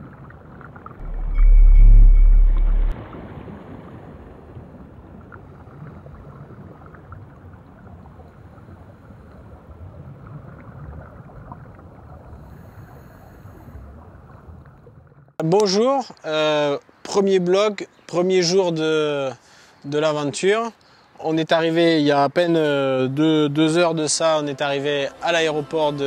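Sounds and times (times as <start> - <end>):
steady rushing noise: 1.0 - 3.0
deep low boom: 1.0 - 3.1.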